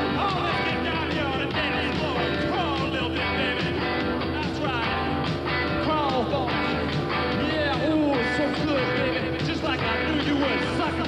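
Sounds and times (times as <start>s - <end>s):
steady drum beat: 0.0s - 11.0s.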